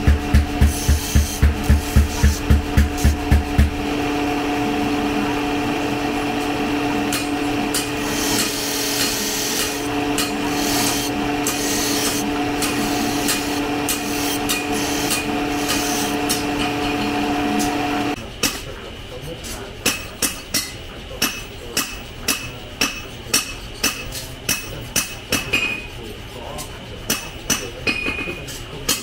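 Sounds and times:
hammer blows: 0.0 - 3.8
electric grinder grinding steel: 0.0 - 18.2.

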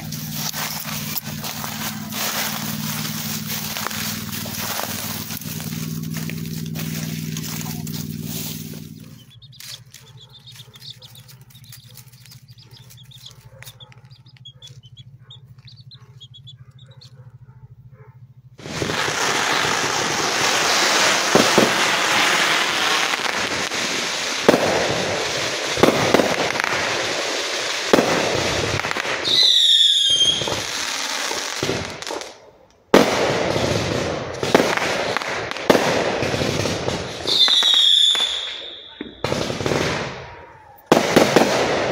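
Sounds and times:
fireworks crackling and popping: 0.0 - 16.6, 18.6 - 41.9
chicks peeping: 0.0 - 17.4
whistling firework shrieking: 18.6 - 31.4, 37.2 - 39.2.

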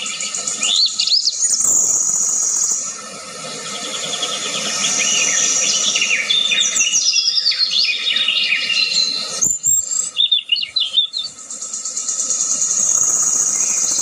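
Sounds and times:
steady high-pitched buzz: 0.0 - 7.3, 11.3 - 14.0
birds chirping: 0.0 - 14.0.

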